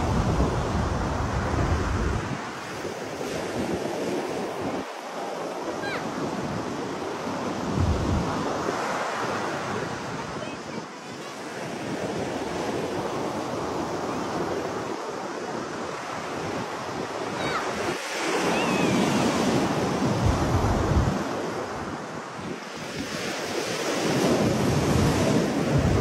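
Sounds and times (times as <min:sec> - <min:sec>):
surf hissing on beach: 0:00.0 - 0:26.0
wind buffeting microphone: 0:00.0 - 0:26.0.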